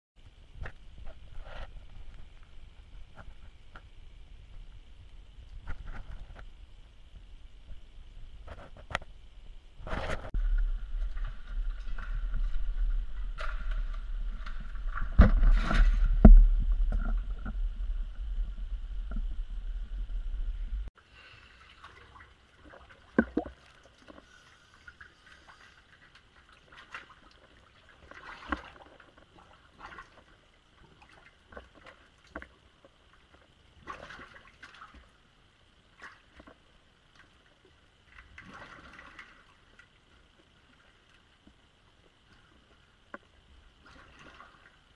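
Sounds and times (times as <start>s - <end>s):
camera rubbing rumble: 0.2s - 20.9s
water splashing and sloshing: 0.2s - 44.9s.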